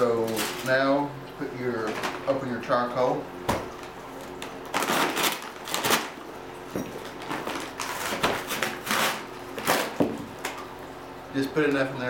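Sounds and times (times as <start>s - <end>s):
paper bag tearing and rustling: 0.2s - 0.8s, 4.7s - 6.2s, 7.2s - 10.0s.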